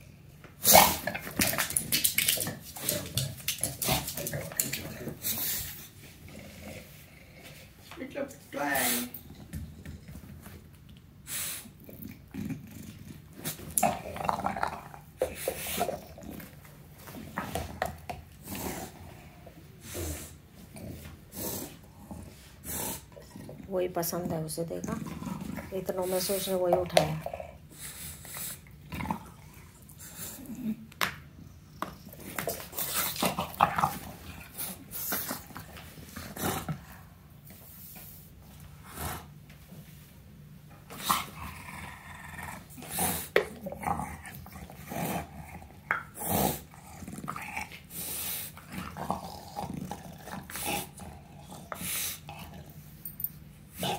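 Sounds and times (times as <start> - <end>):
dog growling: 11.8 - 16.7, 17.5 - 23.7, 24.8 - 25.9, 28.8 - 37.2, 41.0 - 52.8.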